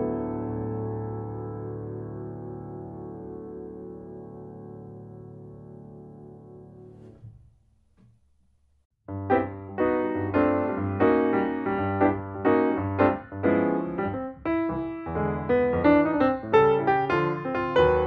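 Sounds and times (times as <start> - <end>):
piano chords: 0.0 - 7.8, 9.1 - 18.0.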